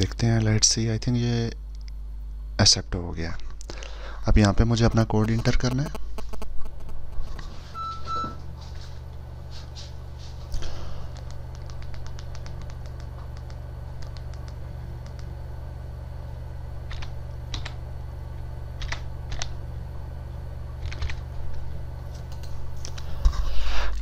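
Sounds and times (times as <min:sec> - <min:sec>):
low steady hum: 0:00.0 - 0:24.0
computer keyboard keys clicking: 0:11.1 - 0:15.3, 0:16.9 - 0:17.8, 0:18.8 - 0:19.5, 0:20.8 - 0:21.2.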